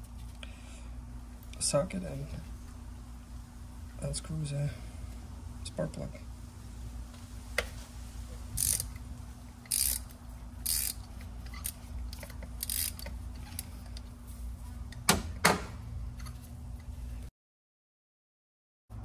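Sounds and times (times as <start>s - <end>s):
hand ratchet clicking: 8.6s - 9.0s, 9.6s - 13.7s.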